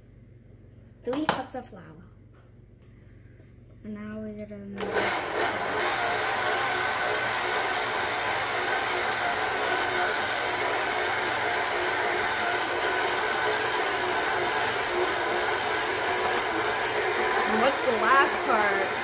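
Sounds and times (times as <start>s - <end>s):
electric stand mixer running: 4.8s - 19.0s.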